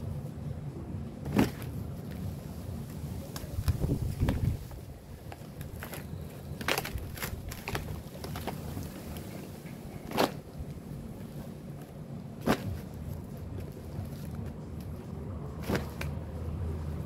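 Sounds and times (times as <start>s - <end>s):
cardboard boxes crunching: 1.2s - 2.0s, 3.3s - 14.6s.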